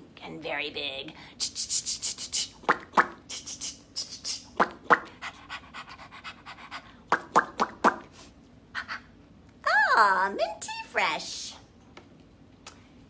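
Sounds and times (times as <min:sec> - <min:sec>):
woman making scrubbing mouth hisses: 0:01.4 - 0:05.3.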